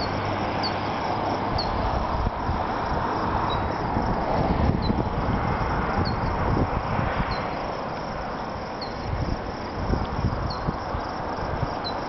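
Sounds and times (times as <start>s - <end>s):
wind buffeting microphone: 0.0s - 12.0s
faint high chirp: 3.5s - 3.7s, 8.8s - 9.0s.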